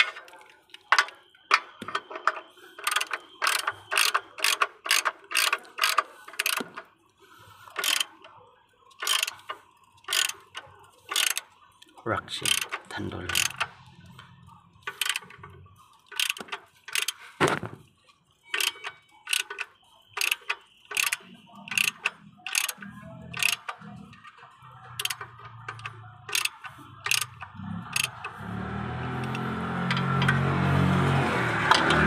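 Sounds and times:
ratchet wrench clicking: 0:00.9 - 0:06.9, 0:07.6 - 0:08.2, 0:08.9 - 0:11.6, 0:12.4 - 0:13.7, 0:14.8 - 0:17.2, 0:18.5 - 0:30.4
engine humming: 0:20.7 - 0:32.0.

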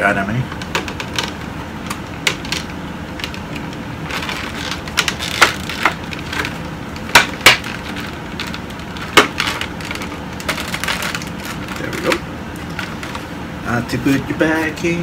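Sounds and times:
sharp plastic cracks: 0:00.5 - 0:13.2
plastic packaging crinkling: 0:02.2 - 0:13.3.

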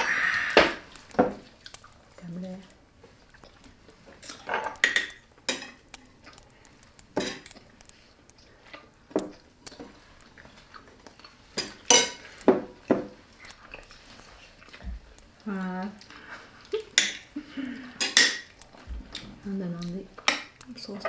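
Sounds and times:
cutlery clinking against plates: 0:11.6 - 0:13.1, 0:17.0 - 0:17.3, 0:18.0 - 0:18.5.

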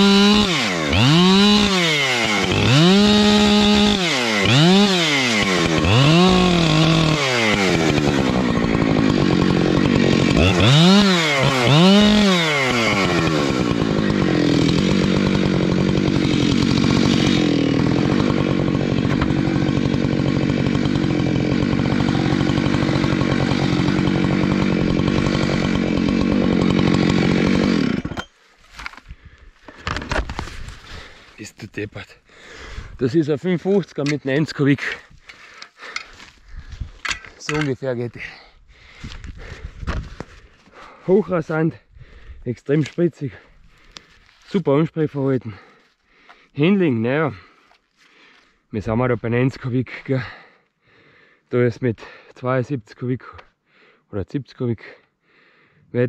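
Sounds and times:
chainsaw revving: 0:00.0 - 0:28.3, 0:32.4 - 0:41.6.

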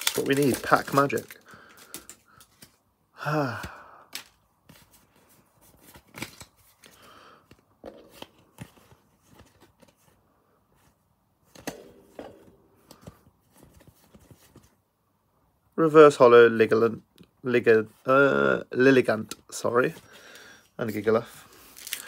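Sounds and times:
trading cards clicking and rustling: 0:00.0 - 0:02.8, 0:04.1 - 0:10.2, 0:11.5 - 0:14.7, 0:21.6 - 0:22.0.

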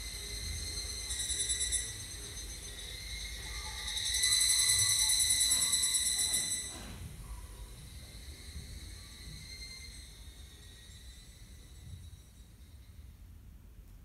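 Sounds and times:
buzzing insect trill: 0:00.0 - 0:06.8, 0:07.4 - 0:12.9.

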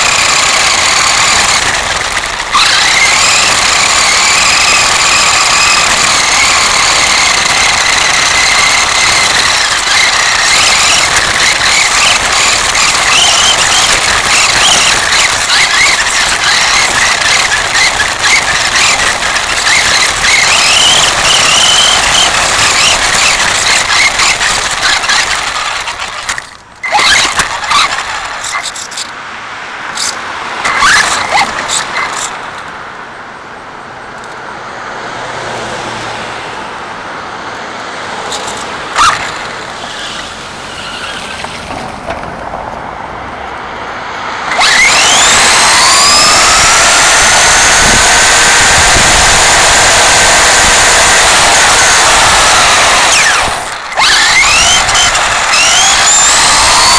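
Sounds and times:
motor whine rising in pitch: 0:00.0 - 0:28.7, 0:44.2 - 0:56.9
toy car motor rattling: 0:00.0 - 0:29.2, 0:29.9 - 0:32.7, 0:38.2 - 0:42.0, 0:44.4 - 0:56.9
clicks: 0:38.2 - 0:40.2.

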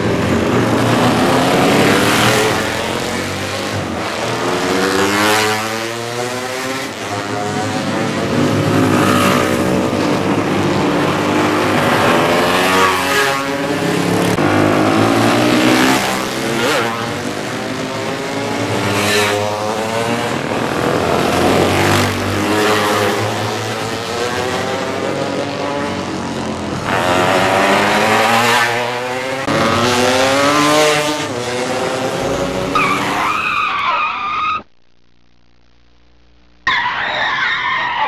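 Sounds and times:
motorcycles accelerating and passing: 0:00.0 - 0:33.4.

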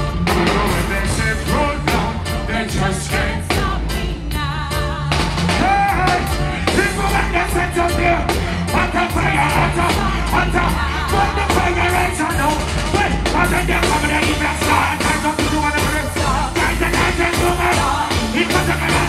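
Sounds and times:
live reggae band playing: 0:00.0 - 0:19.0
man singing into microphone: 0:05.6 - 0:19.0.

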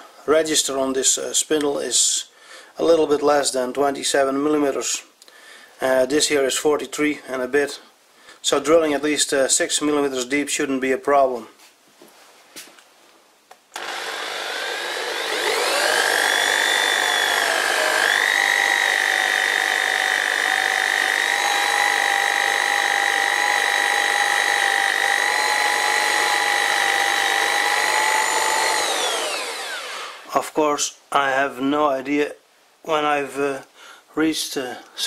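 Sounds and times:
electric drill spindle whining: 0:13.8 - 0:30.3.

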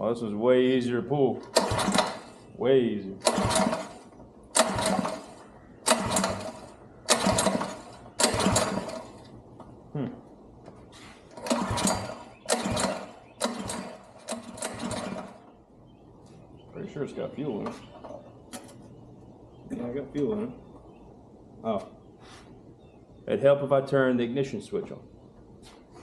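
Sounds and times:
engine recoil starter pulls: 0:01.4 - 0:02.5, 0:03.2 - 0:09.3, 0:11.3 - 0:15.4.

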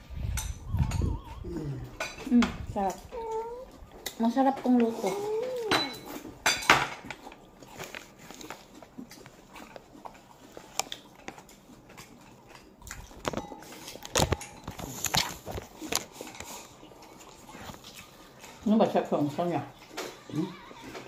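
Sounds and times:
tableware clatter: 0:04.9 - 0:07.2, 0:13.2 - 0:15.0
person chewing: 0:07.0 - 0:18.7.

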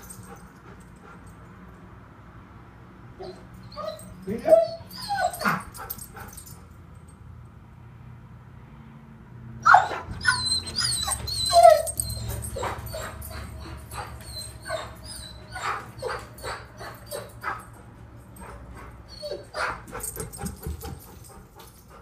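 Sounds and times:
dog howling and whining: 0:03.2 - 0:06.4, 0:09.6 - 0:17.8, 0:18.4 - 0:20.4
dog yelping: 0:03.2 - 0:06.4, 0:09.6 - 0:21.1.

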